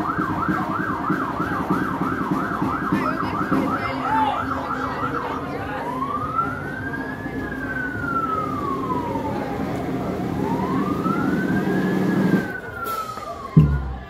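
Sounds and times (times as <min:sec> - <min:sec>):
emergency vehicle siren wailing: 0:00.0 - 0:14.0.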